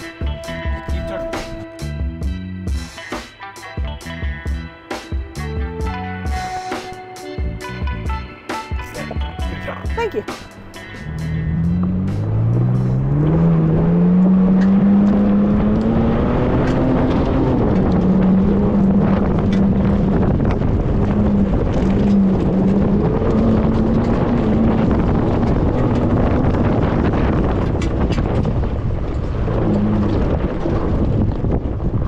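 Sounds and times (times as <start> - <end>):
wind and road noise: 0.0 - 32.0
car engine accelerating: 7.5 - 32.0.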